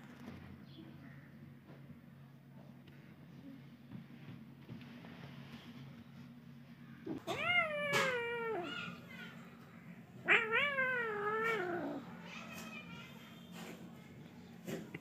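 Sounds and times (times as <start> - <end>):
kitten meowing: 7.1 - 9.1, 10.2 - 12.1.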